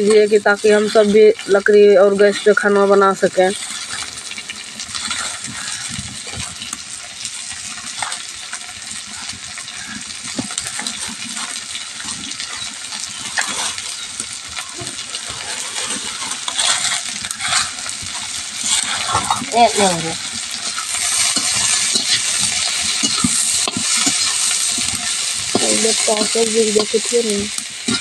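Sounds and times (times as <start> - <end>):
onions sizzling in hot oil: 0.0 - 28.0.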